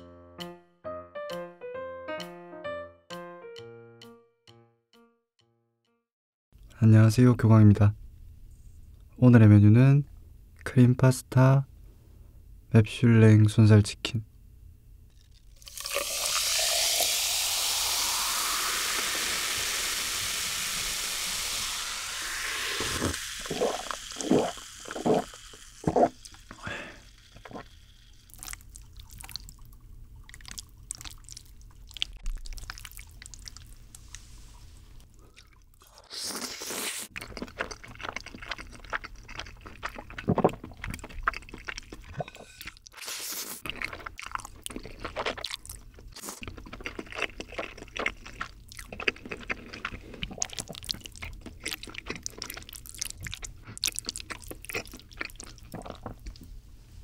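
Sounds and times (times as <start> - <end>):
pasta slurping and chewing: 15.1 - 56.5.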